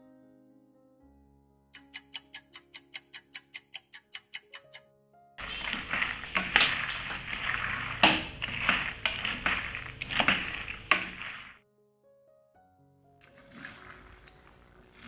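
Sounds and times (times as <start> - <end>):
butter sizzling: 5.4 - 11.6
nuts rattling in a pan: 5.4 - 11.6.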